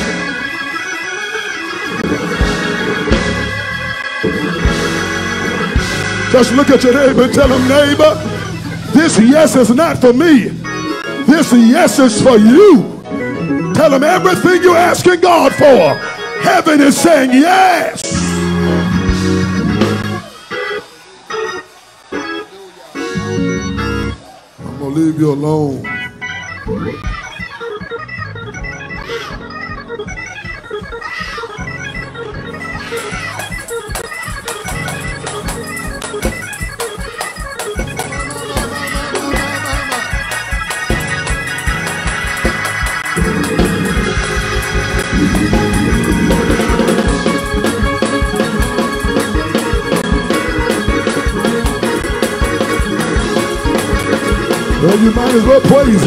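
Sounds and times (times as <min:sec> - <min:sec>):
up-tempo organ music: 0:00.0 - 0:56.0
low thumping beat: 0:33.2 - 0:56.0.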